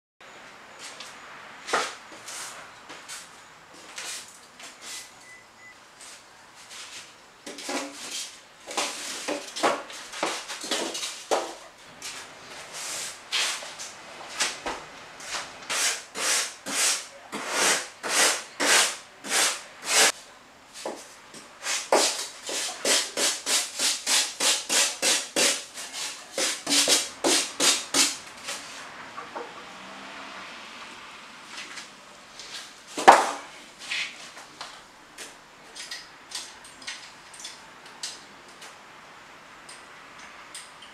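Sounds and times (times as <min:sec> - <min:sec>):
sanding foam board: 0:15.7 - 0:20.1, 0:21.6 - 0:28.2.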